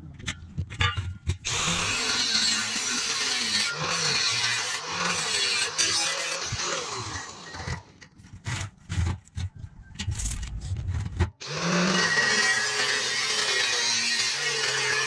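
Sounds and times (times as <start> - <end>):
angle grinder cutting steel pipe: 1.4 - 8.0, 11.4 - 15.0.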